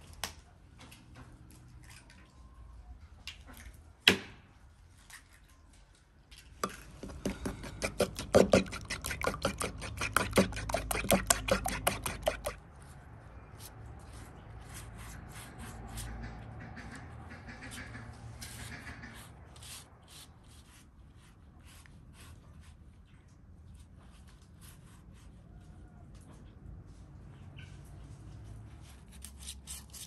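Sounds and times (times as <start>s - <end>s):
fork beating egg in bowl: 6.6s - 12.6s
pastry brush rubbing dough: 6.6s - 22.9s.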